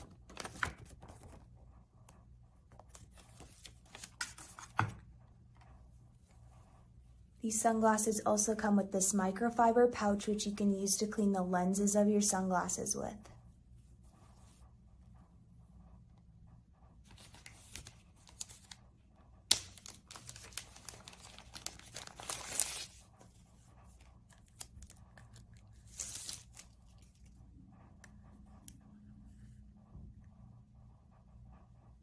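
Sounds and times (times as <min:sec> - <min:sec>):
plastic wrapping crinkling: 0:19.5 - 0:23.0.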